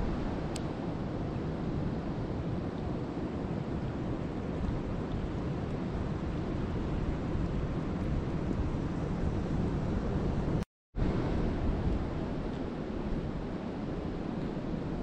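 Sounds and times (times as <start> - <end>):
rain falling on lake water: 3.2 - 9.1.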